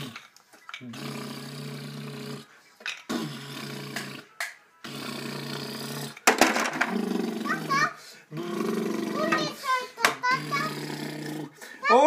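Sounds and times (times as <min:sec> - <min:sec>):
man humming engine imitation: 0:07.2 - 0:09.4.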